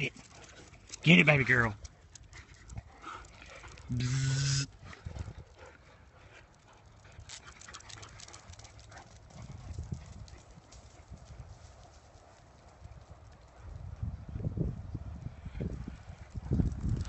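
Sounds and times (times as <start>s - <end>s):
dog claws clicking on concrete: 7.0s - 10.9s.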